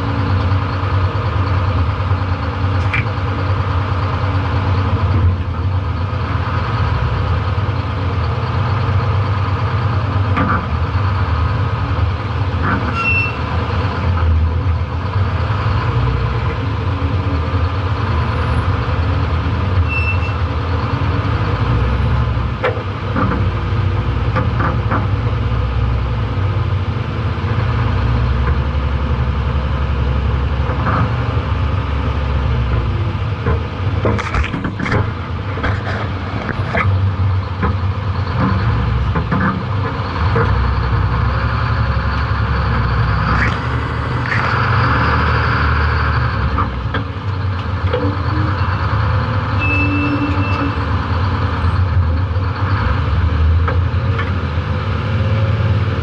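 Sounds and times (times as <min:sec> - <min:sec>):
truck engine running: 0:00.0 - 0:56.0
short high squeaks: 0:12.9 - 0:13.5, 0:19.8 - 0:20.4.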